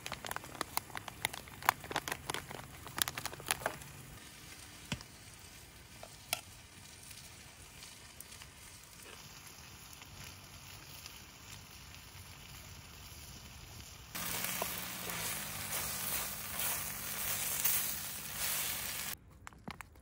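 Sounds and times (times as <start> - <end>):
faint hiss: 6.8 - 19.2
loud dense hiss: 14.1 - 19.2.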